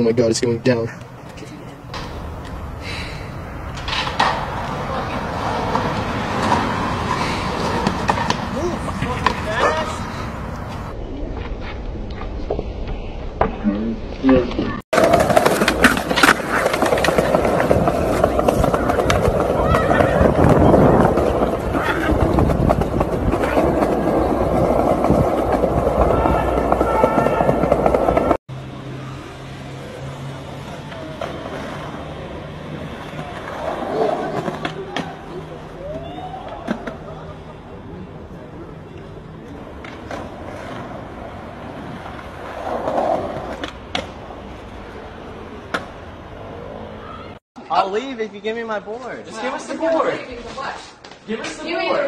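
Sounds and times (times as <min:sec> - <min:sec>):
traffic: 0:00.0 - 0:52.0
skateboard wheels rolling on stone: 0:03.6 - 0:13.6, 0:14.2 - 0:28.4, 0:29.8 - 0:47.1
skateboard clacking on ground: 0:03.7 - 0:09.9, 0:15.0 - 0:28.4, 0:33.0 - 0:35.4, 0:39.0 - 0:44.3.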